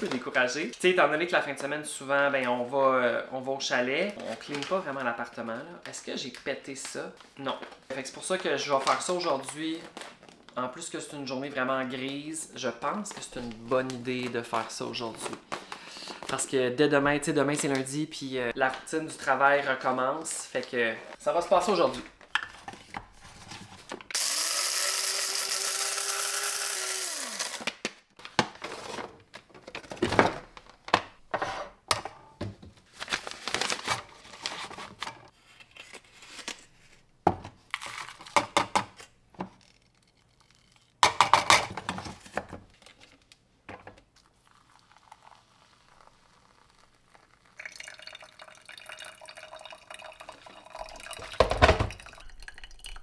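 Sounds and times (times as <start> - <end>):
electric coffee grinder running: 24.2 - 27.7
water pouring over grounds: 44.3 - 51.4.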